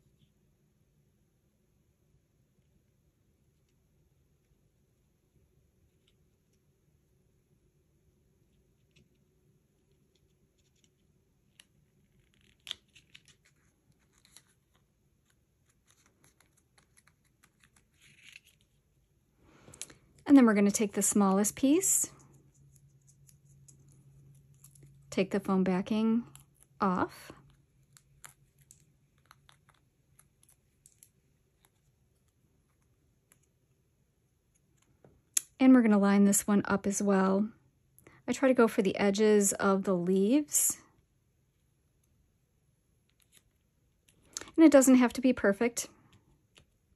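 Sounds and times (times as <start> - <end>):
light paper rustle: 10.5 - 18.9.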